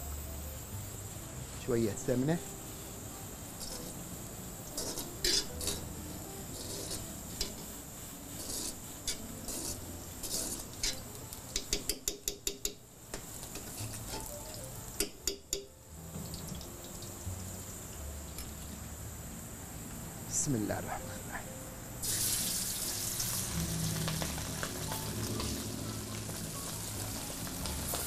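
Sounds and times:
faint steady hiss: 0:00.0 - 0:28.0
metal spoon scraping frying pan: 0:03.6 - 0:04.0, 0:04.7 - 0:05.9, 0:06.5 - 0:14.3.

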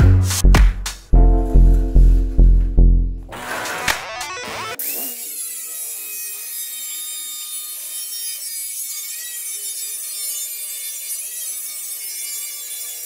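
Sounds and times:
angle grinder cutting sheet metal: 0:03.3 - 0:13.0.

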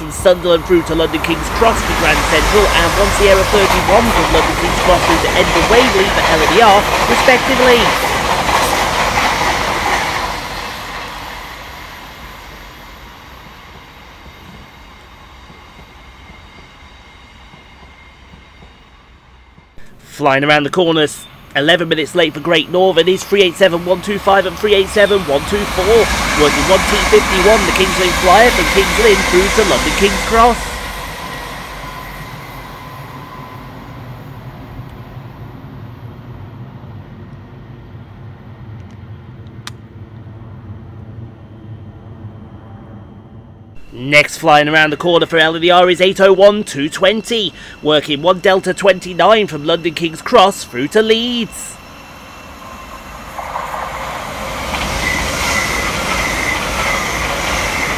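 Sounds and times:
passing trains rolling: 0:00.0 - 0:57.9
thin high whine: 0:10.8 - 0:35.9, 0:40.4 - 0:57.9.

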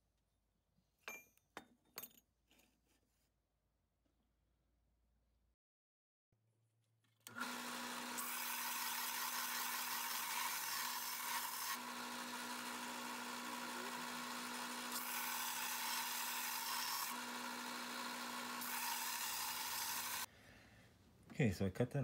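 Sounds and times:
belt sander motor hum: 0:07.3 - 0:20.3
metal grinding on sanding belt: 0:07.4 - 0:20.3.

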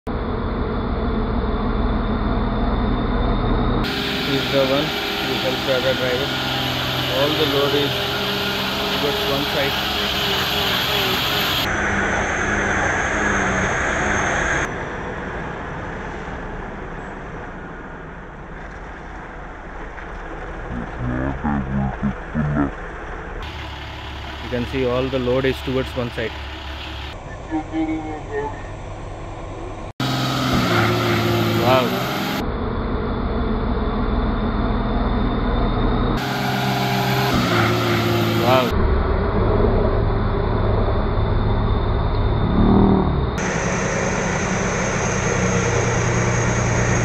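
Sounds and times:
high whine: 0:00.1 - 0:18.4, 0:20.5 - 0:47.0
diesel lorry engine under load: 0:00.1 - 0:47.0
loud hiss: 0:03.9 - 0:11.7, 0:43.4 - 0:47.0.

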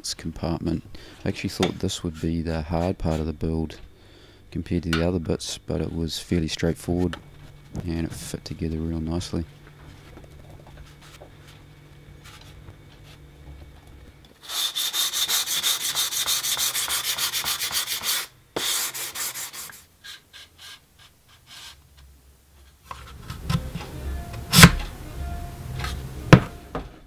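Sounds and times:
sandpaper scratching strokes: 0:14.4 - 0:21.8.

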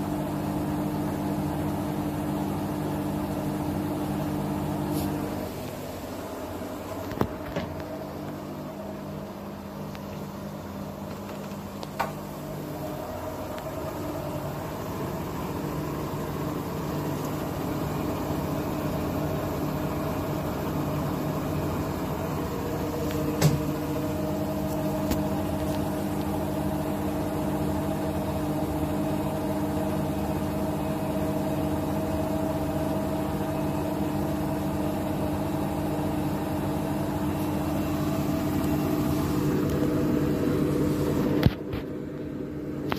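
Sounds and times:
washing machine spinning: 0:00.0 - 0:42.9.

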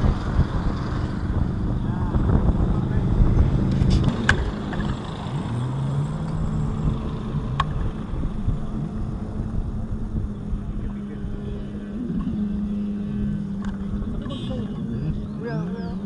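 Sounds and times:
motor engine running: 0:00.0 - 0:16.0
wind rumble on microphone: 0:00.0 - 0:16.0.

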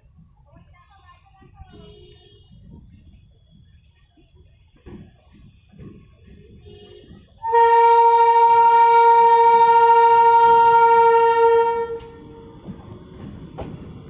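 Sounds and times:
low rumble of train: 0:00.0 - 0:14.0
locomotive horn blast: 0:05.7 - 0:12.5.

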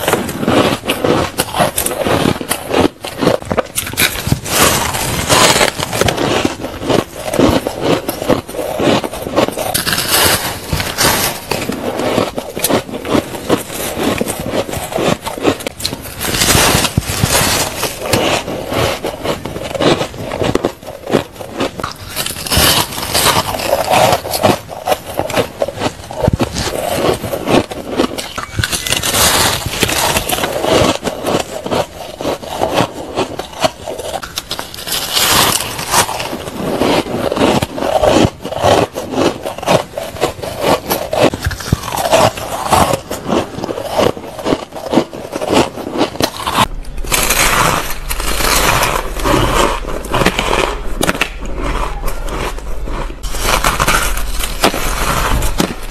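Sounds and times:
shaved ice crunching when chewed: 0:00.0 - 0:55.9
low hum: 0:46.2 - 0:55.9.

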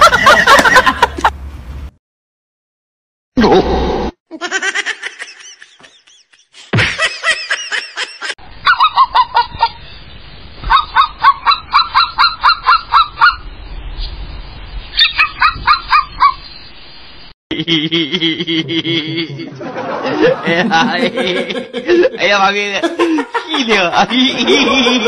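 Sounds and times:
fast chirping calls: 0:14.9 - 0:16.7.

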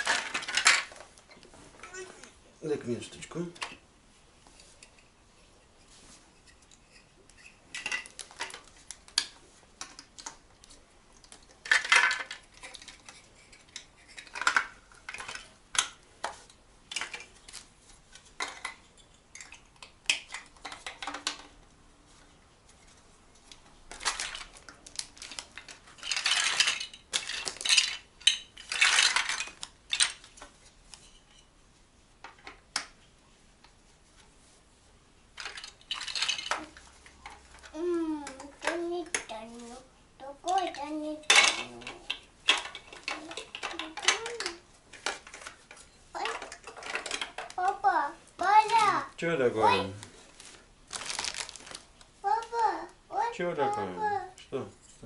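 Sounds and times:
dishes and cutlery clattering: 0:41.2 - 0:45.4.

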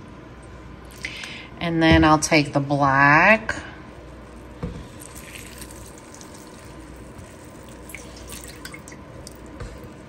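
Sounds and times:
liquid trickling and dripping: 0:04.8 - 0:10.0.

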